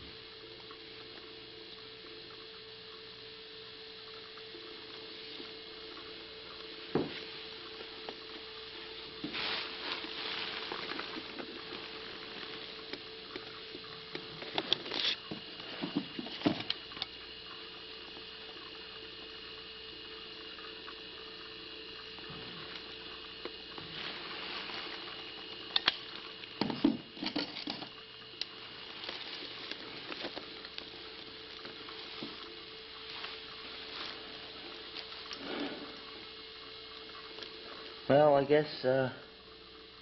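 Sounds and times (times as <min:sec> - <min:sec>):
faint steady hum: 0:00.0 - 0:40.0
rustling and scraping: 0:09.2 - 0:12.7.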